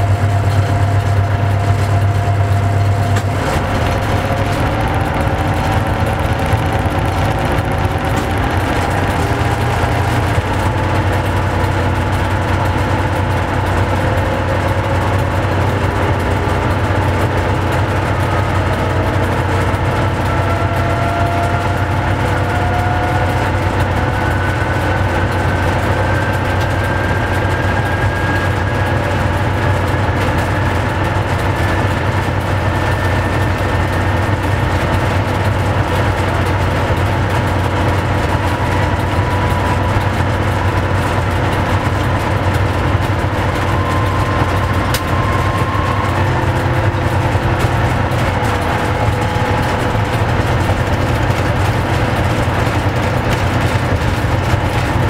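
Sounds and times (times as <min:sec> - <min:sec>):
electric train hum: 0:00.0 - 0:55.0
faint rising whines: 0:35.9 - 0:53.2.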